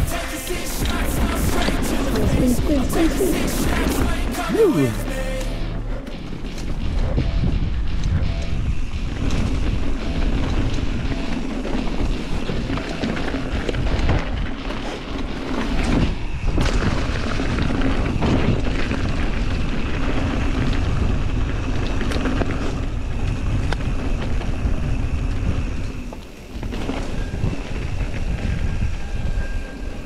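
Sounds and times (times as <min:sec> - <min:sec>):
bike clicks and rattles: 0:06.5 - 0:29.3
wind buffeting microphone: 0:26.6 - 0:30.0.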